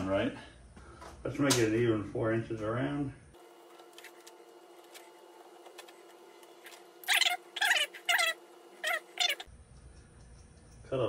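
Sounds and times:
short high animal calls: 7.0s - 9.5s.

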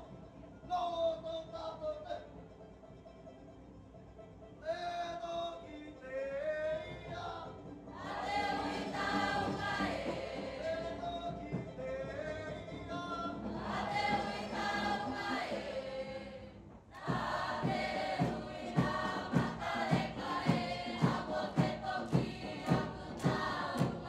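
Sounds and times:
large group singing: 6.5s - 24.0s
steady drum beat: 8.0s - 11.8s, 13.3s - 15.8s, 16.6s - 24.0s.

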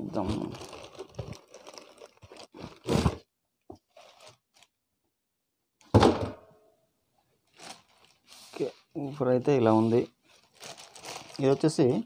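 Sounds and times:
cardboard and plastic rustling: 0.0s - 4.7s, 7.5s - 12.0s
heavy thump on wooden table: 5.9s - 6.4s.

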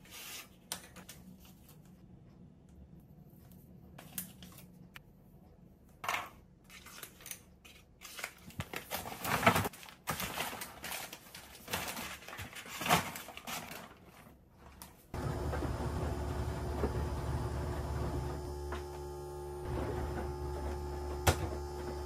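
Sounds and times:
paper bag rustling: 8.0s - 15.0s.

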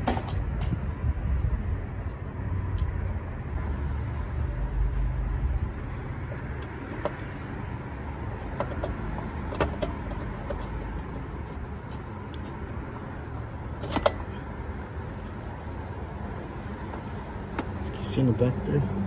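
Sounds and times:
steady background noise: 0.0s - 19.0s
light metal clicks and knocks: 8.4s - 11.2s.

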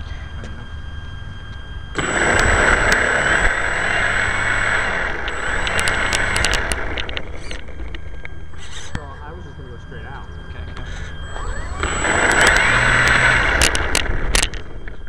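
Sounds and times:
electric motor and propeller whine: 0.0s - 15.0s
sharp clicks: 1.5s - 9.1s, 10.7s - 15.0s.

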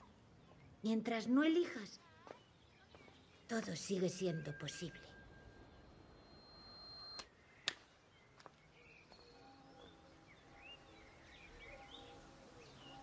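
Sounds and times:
birds chirping: 0.0s - 13.0s
faint steady ambience: 0.0s - 13.0s.

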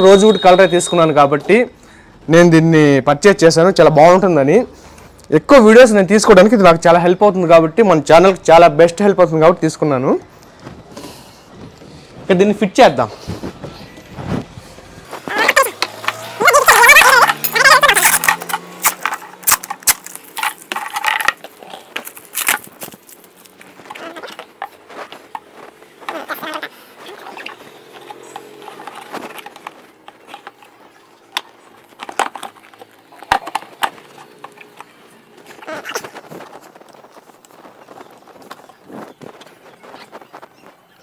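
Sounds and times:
plastic parts knocking and clattering: 15.5s - 26.5s, 27.5s - 36.8s.

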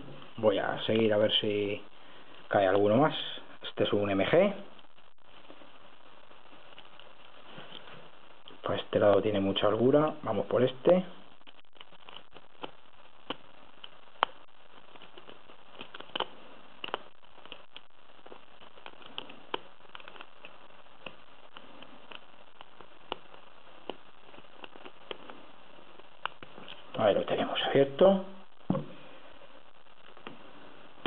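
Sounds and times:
faint hiss: 0.0s - 31.0s.

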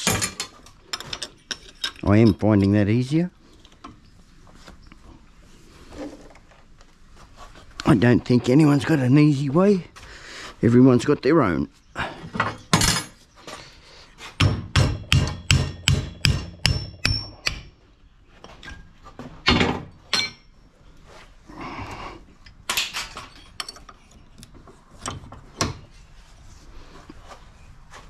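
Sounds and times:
hammer striking metal: 14.4s - 17.7s.

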